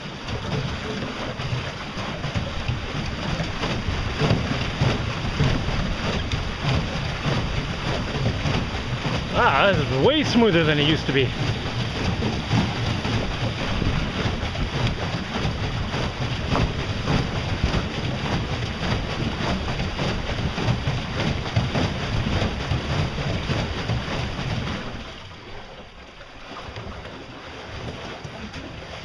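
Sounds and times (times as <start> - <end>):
pedal boat churning water: 0.0 - 29.0
wind buffeting microphone: 2.3 - 25.1.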